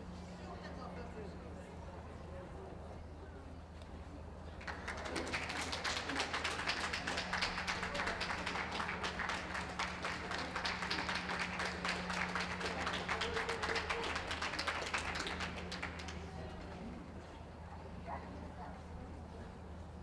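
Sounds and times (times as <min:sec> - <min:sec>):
audience clapping: 0:04.6 - 0:16.7.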